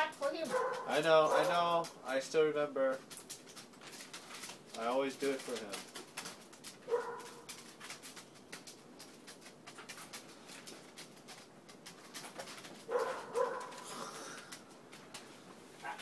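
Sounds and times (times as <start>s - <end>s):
newspaper crinkling and rustling: 0.0s - 16.0s
dog barking: 0.4s - 1.6s, 6.9s - 7.5s, 12.9s - 14.0s, 15.8s - 16.0s.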